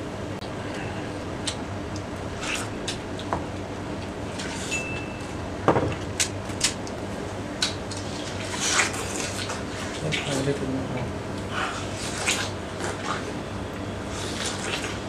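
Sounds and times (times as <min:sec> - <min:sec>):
steady background hum: 0:00.0 - 0:15.0
watermelon being eaten: 0:11.4 - 0:15.0.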